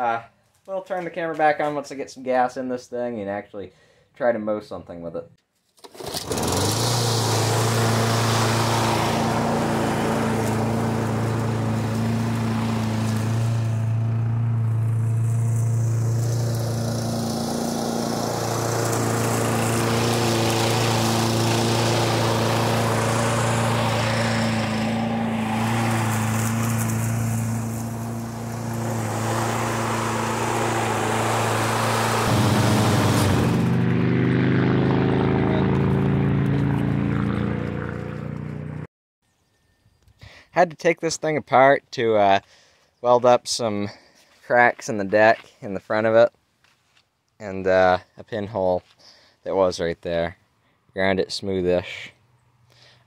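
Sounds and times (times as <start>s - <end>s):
lawn mower engine running: 5.8s - 38.8s.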